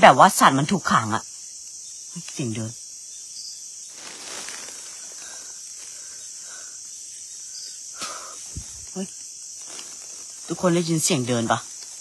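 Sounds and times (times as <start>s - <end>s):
night insects trilling: 0.0s - 12.0s
footsteps rustling: 3.9s - 6.1s, 8.4s - 12.0s.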